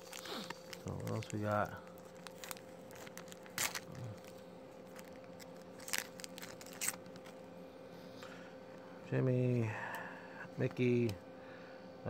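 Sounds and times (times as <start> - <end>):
foil wrapper tearing and crinkling: 0.0 - 7.4.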